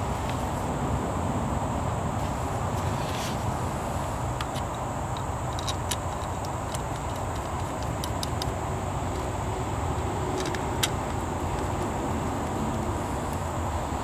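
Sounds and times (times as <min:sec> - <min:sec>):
steady low rumble: 0:00.0 - 0:14.0
plastic parts clicking: 0:04.4 - 0:09.3, 0:10.3 - 0:13.4.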